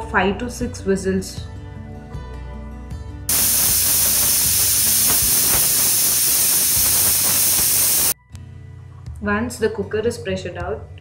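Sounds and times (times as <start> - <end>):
pressure cooker whistle hiss: 3.3 - 8.2.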